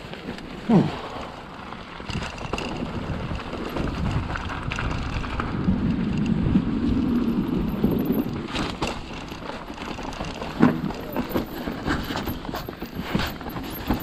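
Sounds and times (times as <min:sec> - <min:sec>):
bike tyres rumbling over ground: 0:00.0 - 0:14.0
wind buffeting microphone: 0:02.0 - 0:09.4.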